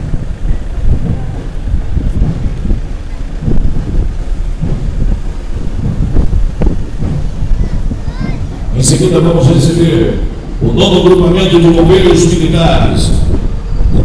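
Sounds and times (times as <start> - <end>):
diesel truck engine rumbling: 0.0 - 14.0.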